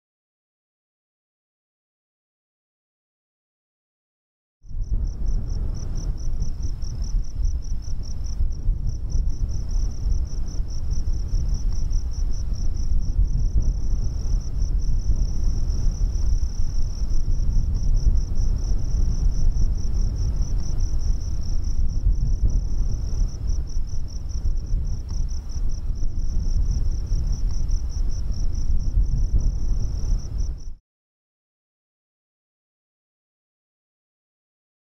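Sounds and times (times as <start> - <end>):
steady low rumble: 4.6 - 30.8.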